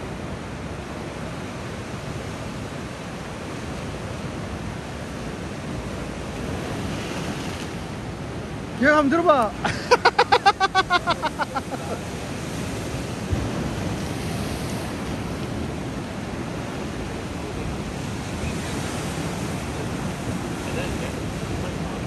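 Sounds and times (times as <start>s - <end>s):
waves washing over rocks: 0.0s - 22.0s
wind buffeting microphone: 11.8s - 22.0s.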